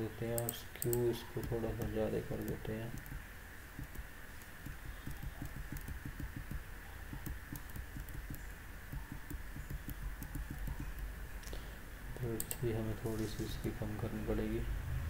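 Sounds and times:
low steady hum: 0.0 - 15.0
keyboard keys clicking: 0.4 - 3.2, 3.8 - 11.1.

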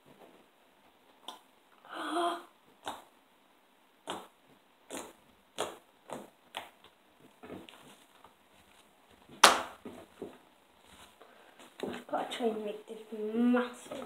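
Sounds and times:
slime popping and squelching: 4.0 - 7.0.

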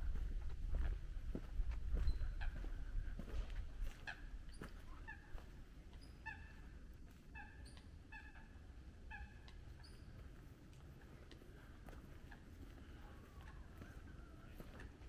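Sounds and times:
faint footsteps on path: 0.0 - 8.0, 9.3 - 15.0.

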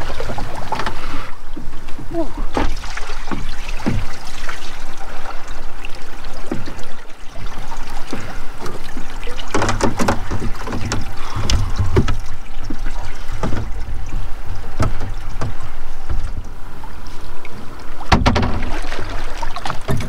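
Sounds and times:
knocks and clatter on boat: 0.0 - 20.0
water splashing from wading: 0.0 - 20.0.

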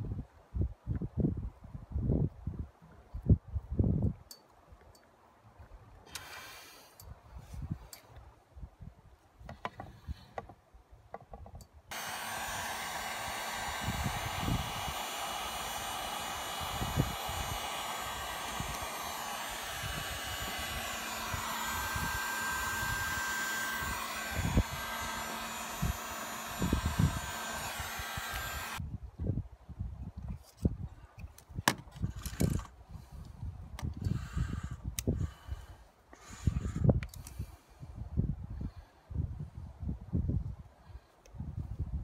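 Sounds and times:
wind buffeting microphone: 0.0 - 4.3, 13.2 - 23.2, 23.8 - 40.7, 41.3 - 42.0
heat gun fan blowing: 6.1 - 6.9, 11.9 - 28.8, 33.8 - 37.6.

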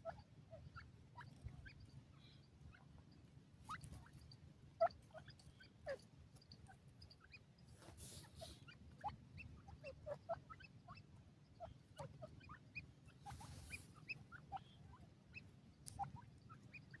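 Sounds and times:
birds chirping and squeaking: 0.0 - 17.0
rustling hiss: 7.7 - 8.6, 13.2 - 14.0.

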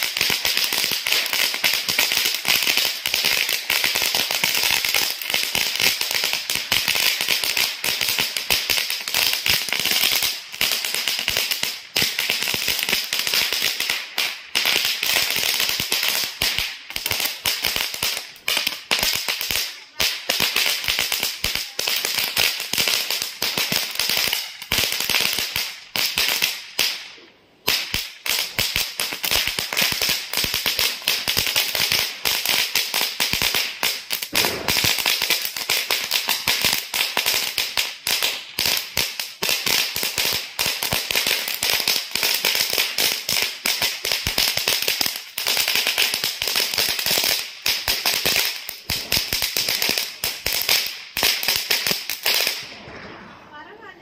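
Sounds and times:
firecracker chain crackling: 27.7 - 53.8.

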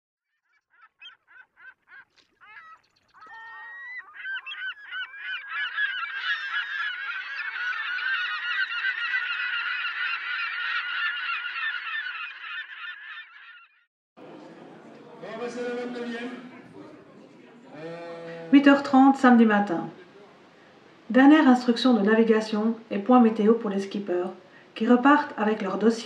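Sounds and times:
flock of birds squawking: 0.7 - 13.8.

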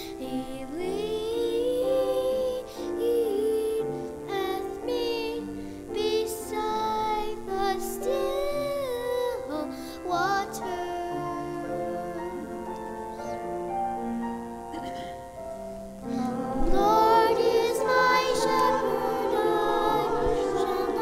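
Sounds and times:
church choir singing in parts: 0.0 - 9.5, 16.0 - 21.0
held accompanying notes: 10.4 - 21.0.

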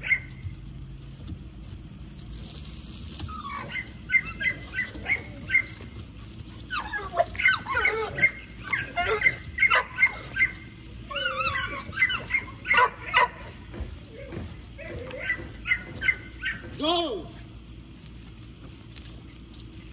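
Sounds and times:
dog yipping: 0.0 - 0.5, 3.2 - 16.8
dog whining: 3.2 - 16.8.

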